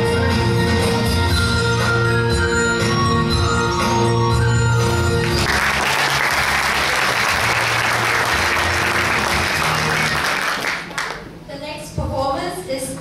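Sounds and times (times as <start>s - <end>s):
background music: 0.0s - 10.9s
audience applauding: 4.8s - 11.3s.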